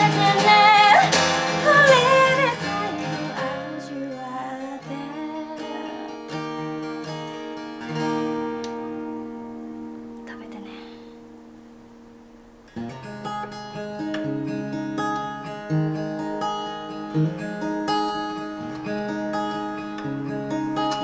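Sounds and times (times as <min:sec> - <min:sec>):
woman singing: 0:00.0 - 0:06.4
strummed acoustic guitar: 0:00.0 - 0:21.0.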